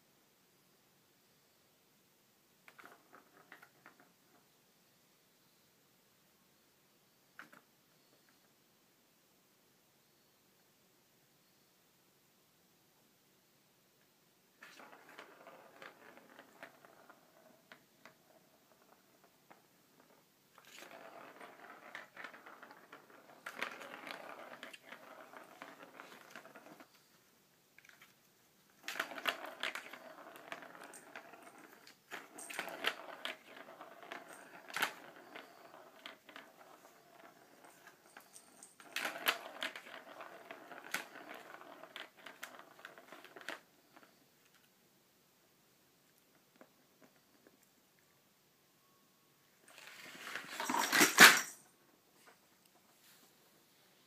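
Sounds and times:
ball rolling in plastic track: 0:02.6 - 0:04.5, 0:14.6 - 0:27.2, 0:27.8 - 0:44.7, 0:46.1 - 0:47.7, 0:49.6 - 0:52.9.

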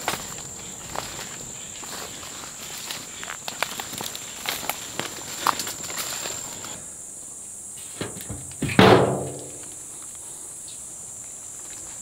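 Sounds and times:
footsteps through dry brush: 0:00.0 - 0:06.8
insects buzzing: 0:00.0 - 0:12.0.

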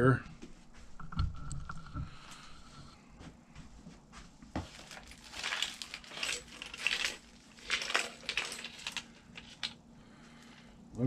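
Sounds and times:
cellophane crinkling: 0:04.6 - 0:09.8
small parts rattling in plastic tray: 0:04.6 - 0:09.8.

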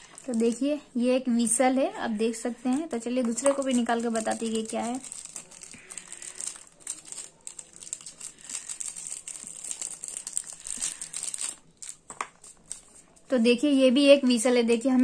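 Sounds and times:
plastic wrapper crinkling: 0:00.0 - 0:00.8, 0:02.7 - 0:13.3.

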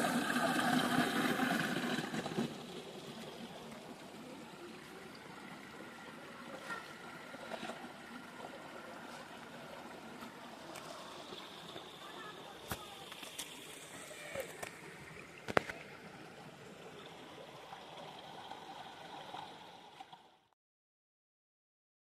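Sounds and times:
stream water trickling: 0:00.0 - 0:20.5.

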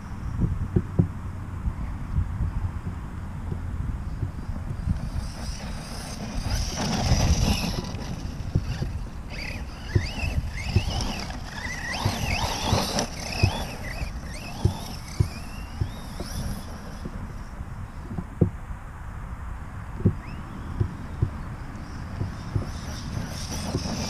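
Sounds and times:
wind rumble on microphone: 0:00.0 - 0:24.0
electric motor whine: 0:04.1 - 0:17.6, 0:21.6 - 0:24.0.

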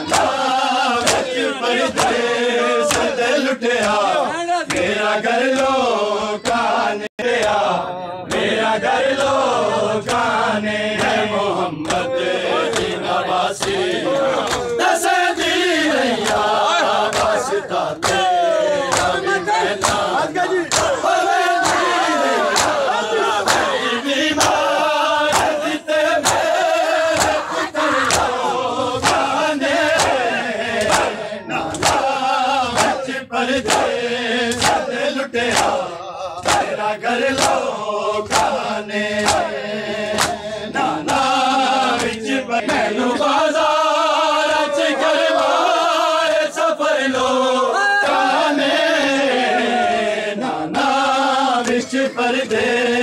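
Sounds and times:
men chanting together: 0:00.0 - 0:53.0
hands slapping bare chests: 0:00.1 - 0:00.4, 0:01.0 - 0:01.3, 0:01.9 - 0:02.2, 0:02.9 - 0:03.2, 0:03.8 - 0:05.8, 0:13.6 - 0:14.8, 0:15.4 - 0:23.7, 0:24.4 - 0:24.6, 0:25.3 - 0:28.4, 0:29.0 - 0:33.0, 0:33.6 - 0:34.9, 0:35.5 - 0:35.8, 0:36.4 - 0:41.3, 0:41.9 - 0:42.9.

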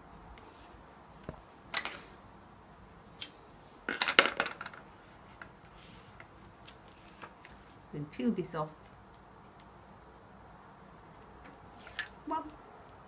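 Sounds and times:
tape crackling: 0:03.2 - 0:07.7, 0:10.9 - 0:13.0.

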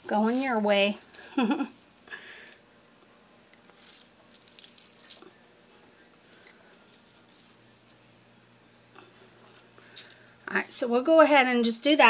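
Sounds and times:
crumbs sprinkled onto pan: 0:03.6 - 0:08.0.

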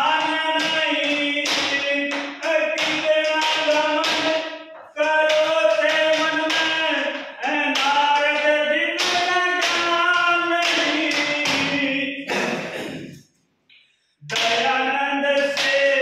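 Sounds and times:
man singing folk song: 0:00.0 - 0:12.7
rhythmic taps: 0:00.0 - 0:16.0.

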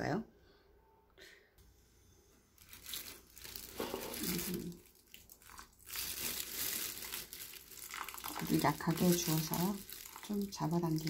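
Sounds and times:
plant cuttings and plastic pot rustling: 0:07.8 - 0:11.0.

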